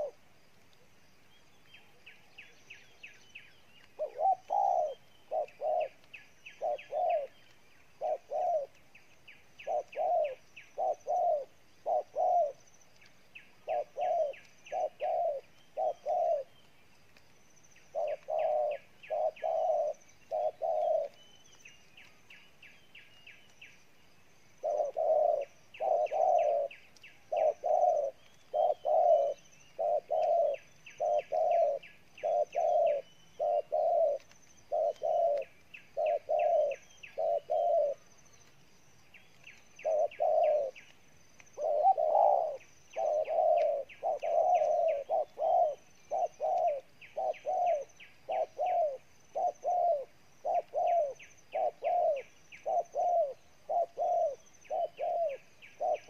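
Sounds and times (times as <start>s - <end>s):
doves cooing: 0.0s - 1.0s, 3.8s - 16.7s, 17.9s - 22.1s, 24.5s - 38.6s, 39.4s - 56.0s.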